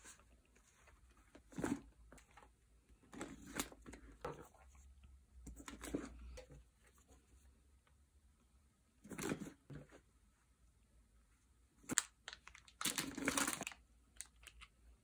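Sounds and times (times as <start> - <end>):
plastic packets crinkling: 11.9 - 14.7.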